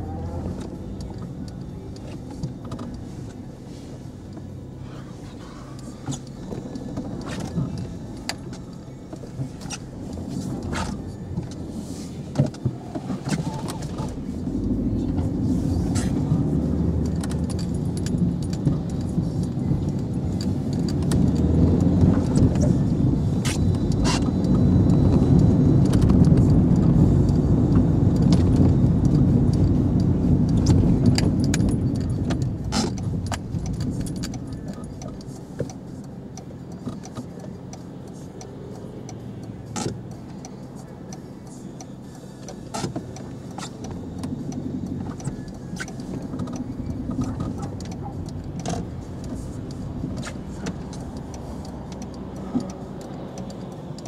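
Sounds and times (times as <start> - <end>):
car engine and road rumble: 0.0 - 54.0
light clicks and rattles: 12.3 - 54.0.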